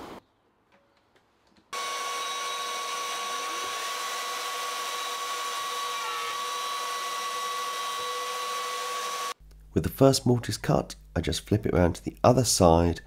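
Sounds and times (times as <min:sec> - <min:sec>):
router cutting wood: 0:01.8 - 0:09.4.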